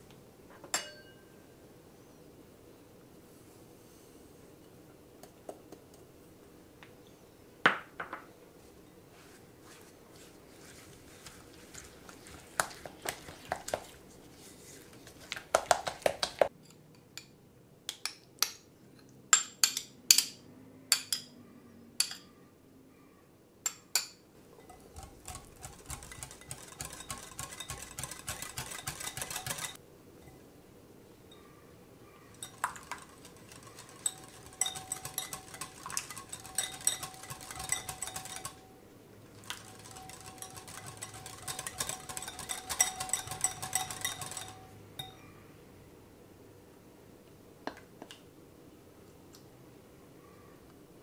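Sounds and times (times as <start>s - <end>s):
sharp clinks on glass: 0.8s - 1.3s, 42.3s - 45.3s
whisk beating in a glass bowl: 10.6s - 14.0s, 24.6s - 29.8s, 32.3s - 38.7s, 39.4s - 45.2s
spatula scraping a glass bowl: 24.6s - 29.8s, 32.3s - 38.7s, 39.4s - 45.2s.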